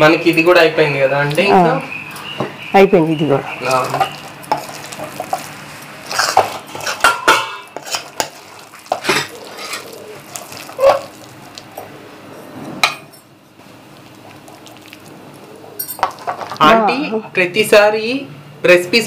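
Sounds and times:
metal spatula scraping a pan: 0:03.9 - 0:09.9.

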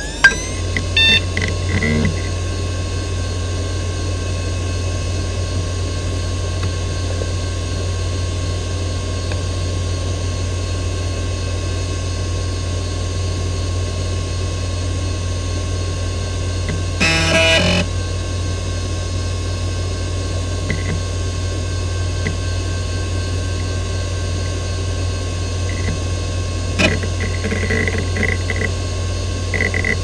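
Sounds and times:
computer fans whirring: 0:00.0 - 0:03.0, 0:16.0 - 0:18.3, 0:21.3 - 0:29.1
hard drive hum and whine: 0:00.0 - 0:30.0.

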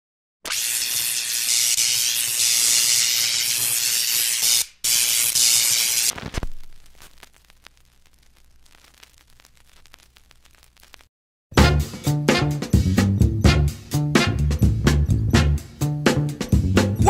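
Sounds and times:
low thud: 0:06.3 - 0:06.8.

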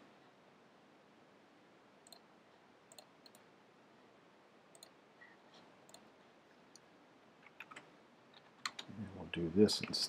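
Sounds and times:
computer mouse and keyboard clicks: 0:06.7 - 0:08.9.

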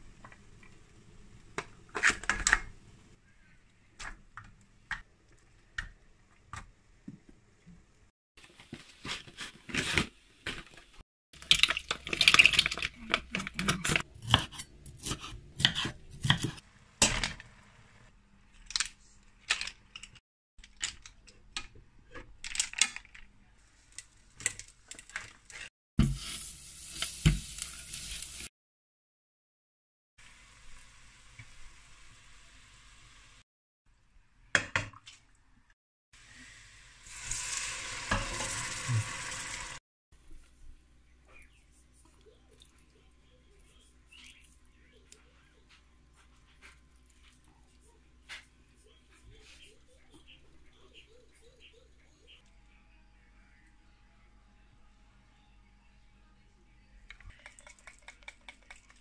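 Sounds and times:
butter sizzling in pot: 0:26.0 - 0:28.5, 0:36.2 - 0:39.8.

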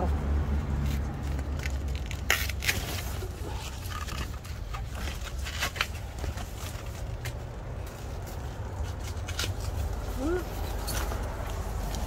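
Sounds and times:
plant stems snapping: 0:01.3 - 0:03.2.

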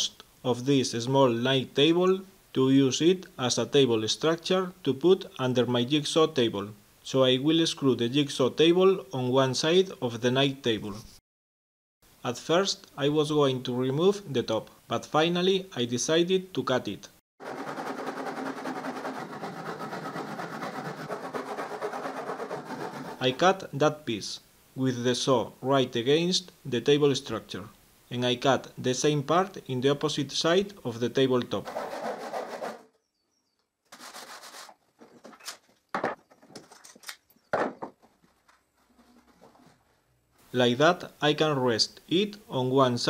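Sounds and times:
hand saw cutting wood: 0:17.4 - 0:23.4, 0:31.6 - 0:32.8
short scrape: 0:17.4 - 0:23.4, 0:31.6 - 0:32.9, 0:33.9 - 0:34.8
wooden knocks and clatters: 0:35.0 - 0:39.9.

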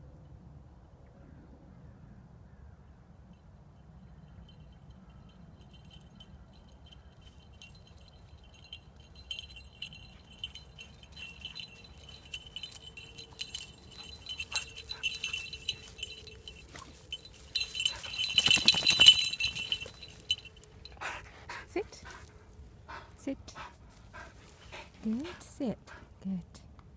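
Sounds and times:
bells on running dog jingling: 0:03.8 - 0:23.0, 0:23.6 - 0:25.8.

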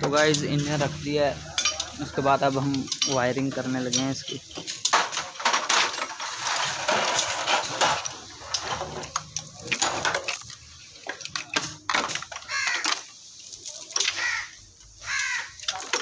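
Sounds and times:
metallic clinks of tools: 0:00.2 - 0:02.0, 0:02.7 - 0:04.9.

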